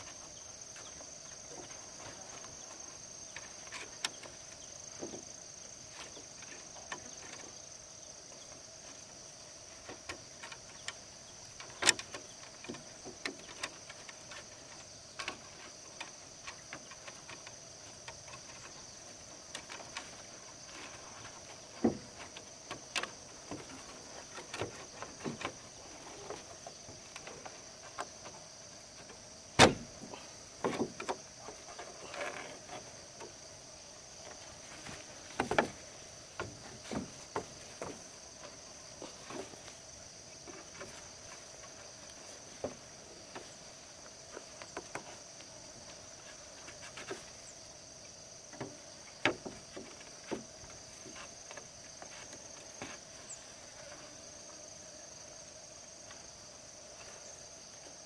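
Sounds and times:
high drone of insects: 0:00.0 - 0:58.0
knocks and taps on bamboo: 0:11.6 - 0:18.7, 0:19.5 - 0:28.4, 0:29.0 - 0:33.4, 0:34.2 - 0:38.5, 0:44.3 - 0:45.5, 0:48.5 - 0:53.0.

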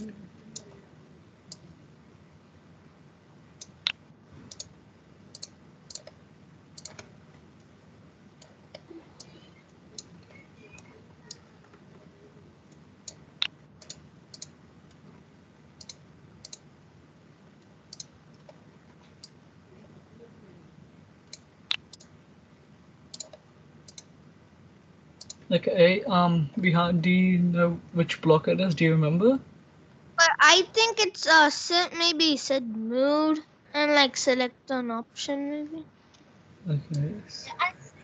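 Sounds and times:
computer mouse clicks: 0:03.6 - 0:06.2, 0:06.8 - 0:07.7, 0:08.4 - 0:12.0, 0:12.7 - 0:15.0, 0:15.8 - 0:16.7, 0:17.6 - 0:19.4, 0:21.3 - 0:22.1, 0:23.1 - 0:24.1, 0:25.2 - 0:25.5.

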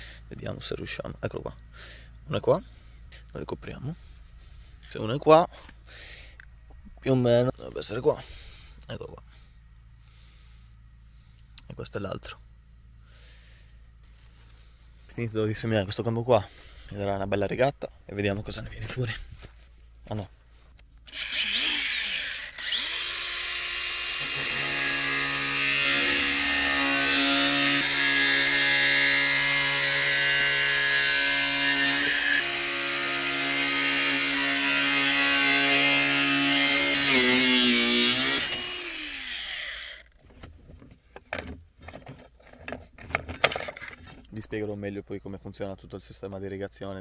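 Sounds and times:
angle grinder cutting metal pipe: 0:21.1 - 0:40.1.

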